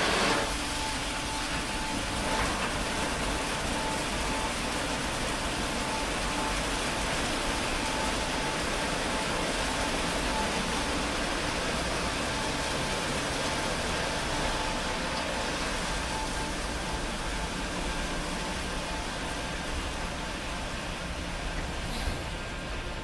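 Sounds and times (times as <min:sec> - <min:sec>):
car wash brushes and water spray: 0:00.0 - 0:00.8.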